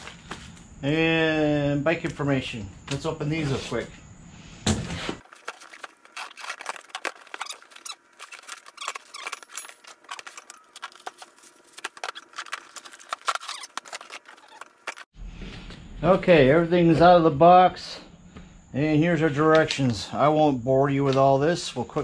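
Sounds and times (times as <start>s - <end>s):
plastic wrapping crinkling: 5.2s - 15.1s.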